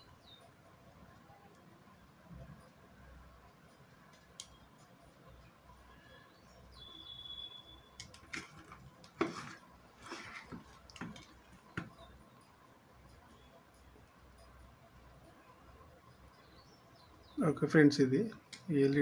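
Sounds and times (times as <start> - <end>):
metal tweezers ticking and scraping: 3.6 - 5.7, 8.0 - 14.8
handling noise and knocks: 8.2 - 12.1.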